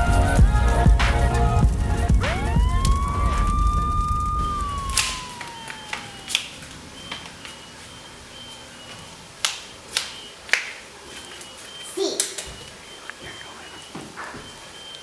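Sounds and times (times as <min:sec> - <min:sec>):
low rumble: 0:00.0 - 0:06.7
whistle-like sweeping tone: 0:02.1 - 0:08.7.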